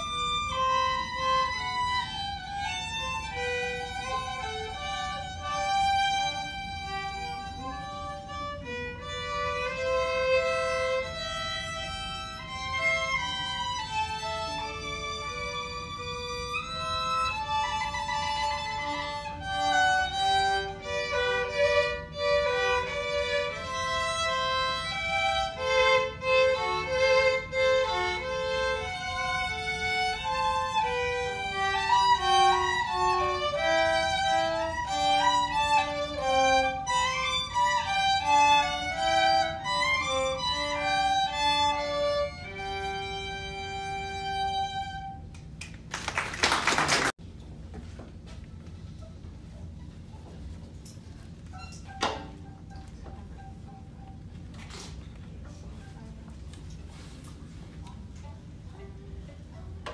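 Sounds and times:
violin ensemble playing: 0:00.0 - 0:45.3.

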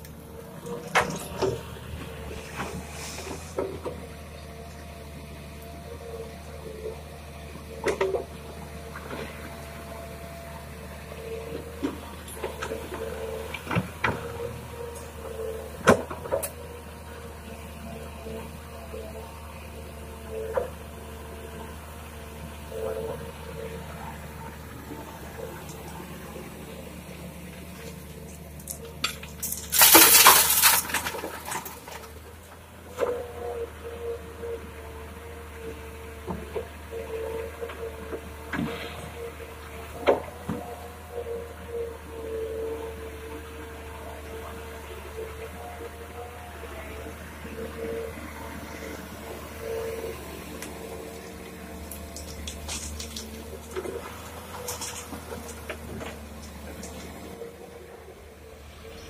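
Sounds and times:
hydraulic whine: 0:00.0 - 0:04.4, 0:21.7 - 0:59.0
diesel engine running: 0:00.0 - 0:59.0
gravel clattering into truck bed: 0:27.9 - 0:32.2, 0:50.7 - 0:57.3
steel bucket knocking stones: 0:29.1 - 0:31.8.

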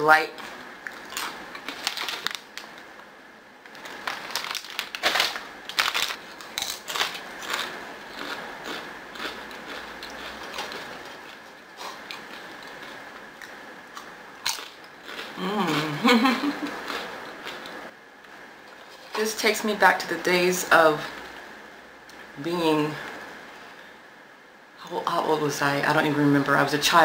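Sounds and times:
chewing crunchy snack: 0:00.8 - 0:02.6, 0:03.7 - 0:17.8.

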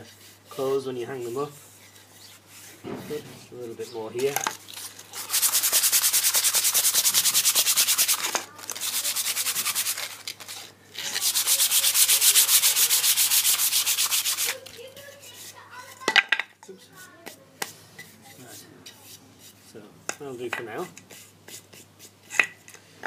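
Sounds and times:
sandpaper rubbing on wood: 0:05.2 - 0:15.9.

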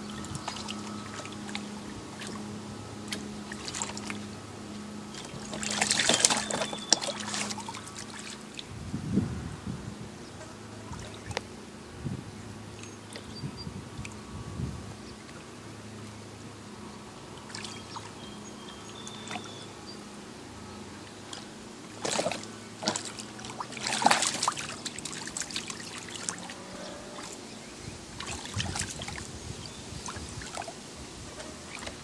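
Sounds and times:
dog paws splashing water: 0:00.0 - 0:08.7, 0:21.2 - 0:27.4, 0:28.1 - 0:30.8, 0:31.4 - 0:32.0.

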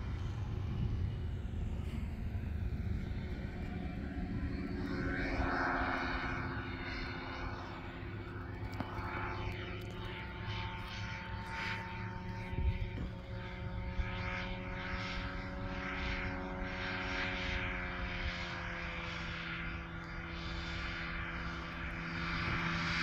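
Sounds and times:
aircraft engine and propeller droning: 0:00.0 - 0:23.0.

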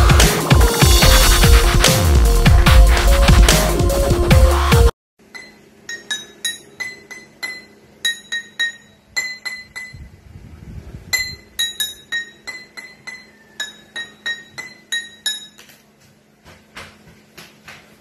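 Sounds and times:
water glasses ringing melody: 0:05.2 - 0:10.0, 0:11.2 - 0:15.6.

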